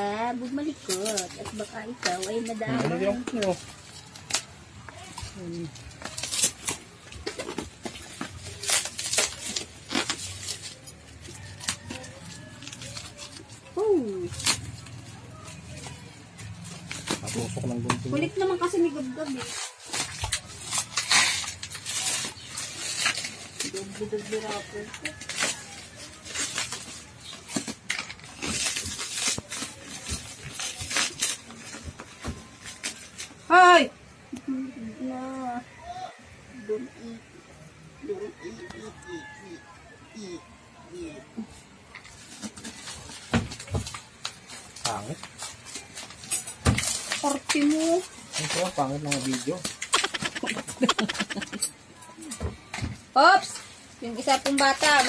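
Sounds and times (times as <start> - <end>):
plastic wrap crinkling: 0.4 - 33.5, 41.9 - 52.3.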